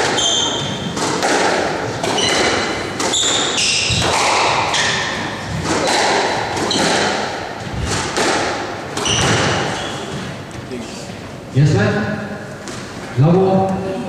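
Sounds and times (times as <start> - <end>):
shoes squeaking on wooden floor: 0.0 - 1.2, 2.0 - 8.2, 9.0 - 10.7
squash ball hitting rackets and walls: 0.0 - 10.6, 12.6 - 13.0.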